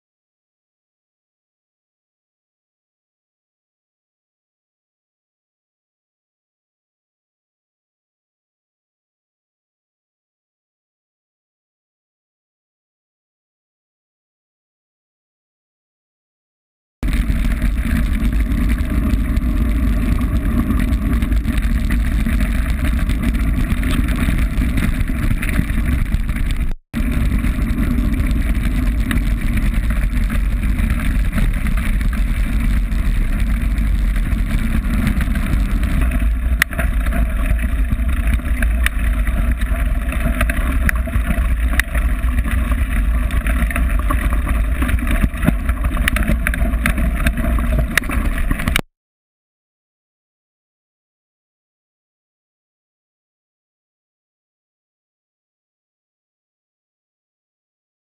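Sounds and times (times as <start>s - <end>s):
bike tyres crunching over gravel: 17.0s - 48.8s
sharp ticks and rattles: 17.0s - 48.8s
wind buffeting microphone: 17.0s - 48.8s.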